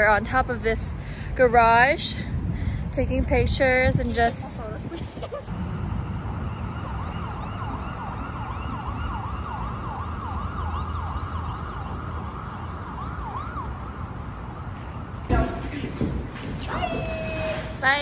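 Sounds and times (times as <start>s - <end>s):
low city rumble: 0.0s - 18.0s
distant siren yelping: 5.9s - 14.8s.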